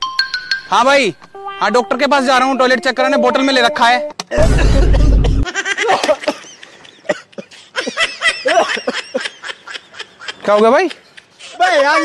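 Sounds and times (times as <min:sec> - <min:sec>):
snickering laughter: 0:04.3 - 0:11.4
loud harsh burst: 0:04.4 - 0:05.5.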